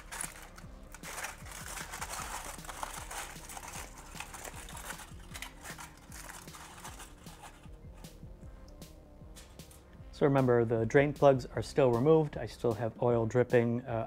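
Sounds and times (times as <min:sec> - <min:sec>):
aluminium foil crinkling: 0:00.0 - 0:07.7.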